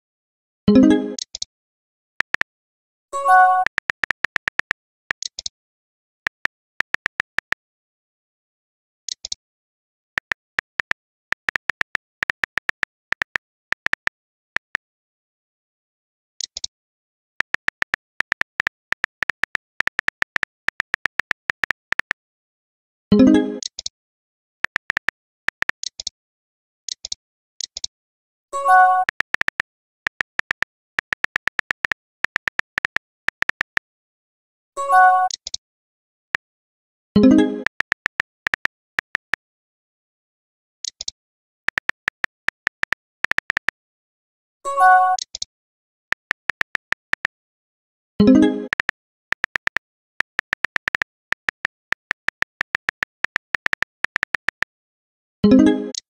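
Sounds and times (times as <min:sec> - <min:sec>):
keyboard tap clicks: 0:03.5 - 0:05.5, 0:06.3 - 0:07.6, 0:10.2 - 0:14.8, 0:17.4 - 0:22.2, 0:24.7 - 0:26.1, 0:29.0 - 0:33.8, 0:37.3 - 0:39.4, 0:41.7 - 0:43.8, 0:46.1 - 0:47.3, 0:48.7 - 0:54.7.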